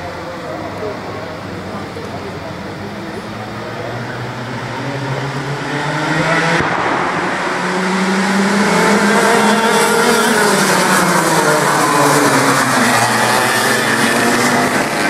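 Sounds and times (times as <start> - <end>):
go-kart engines racing: 0.0 - 15.0.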